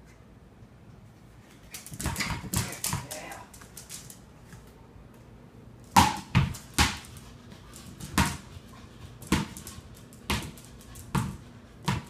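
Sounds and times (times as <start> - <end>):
ball bouncing on hard floor: 1.7 - 4.0, 5.9 - 7.2, 8.0 - 8.6, 9.2 - 12.0.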